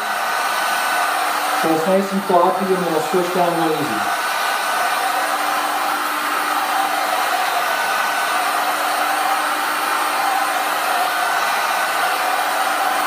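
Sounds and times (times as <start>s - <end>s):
heat gun fan blowing: 0.2s - 13.0s.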